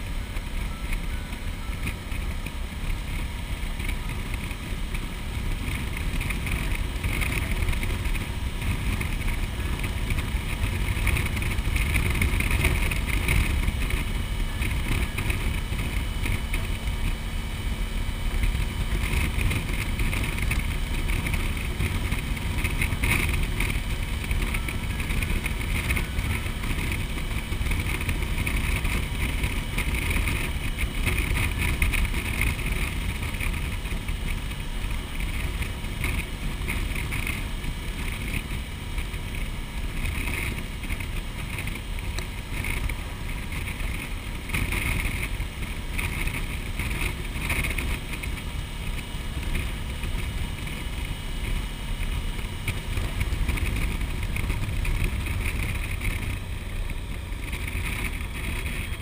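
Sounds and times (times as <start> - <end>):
motorcycle engine drone: 0.0 - 59.0.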